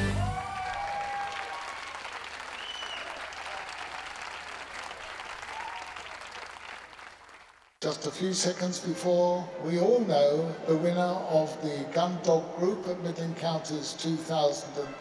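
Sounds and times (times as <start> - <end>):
crowd applauding: 0.0 - 7.8.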